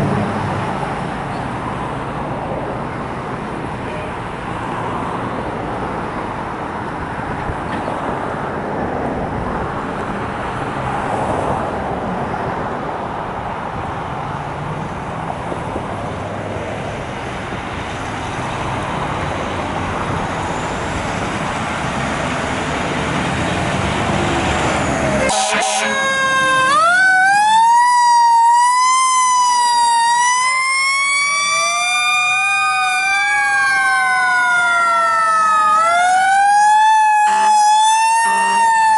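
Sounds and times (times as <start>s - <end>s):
diesel engines rumbling: 0.0s - 38.9s
sirens wailing: 23.8s - 38.9s.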